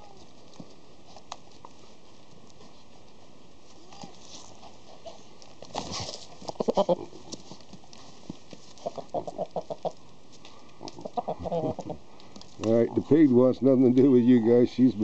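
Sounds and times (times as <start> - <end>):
scuffle of movement: 0.0 - 14.2
rooster clucking: 6.4 - 7.4, 8.8 - 10.0, 10.8 - 12.0.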